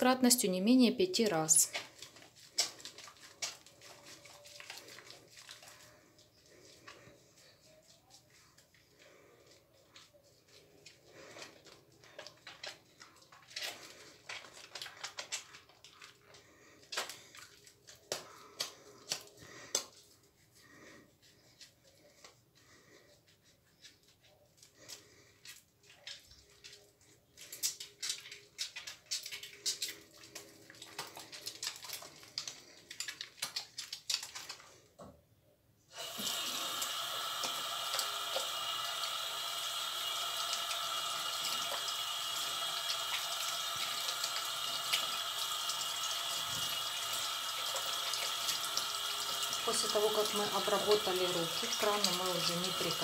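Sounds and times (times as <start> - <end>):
soapy hands rubbing together: 0.0 - 34.9, 35.9 - 53.0
tap water running into sink: 36.0 - 53.0.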